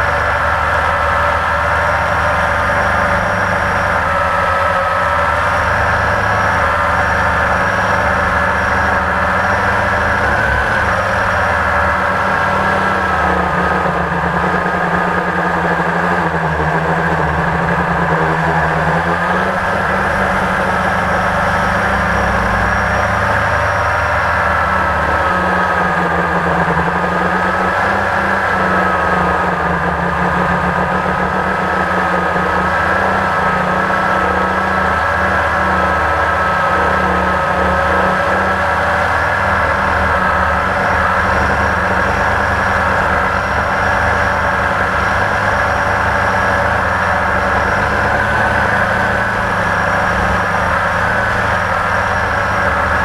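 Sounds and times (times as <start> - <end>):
quadcopter motors whining: 0.0 - 53.0.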